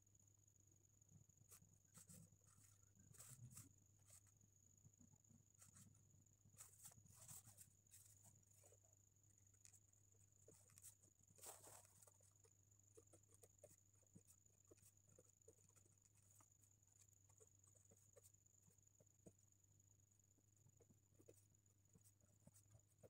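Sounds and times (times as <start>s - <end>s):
faint steady hum: 0.0s - 23.0s
pen scratching on paper: 1.5s - 4.4s, 5.5s - 19.5s.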